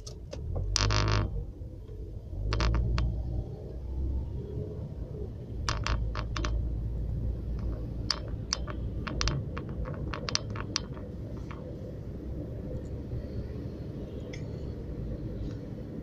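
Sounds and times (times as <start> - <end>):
moving car rumble: 0.0 - 16.0
sharp clicks and taps: 7.5 - 11.7.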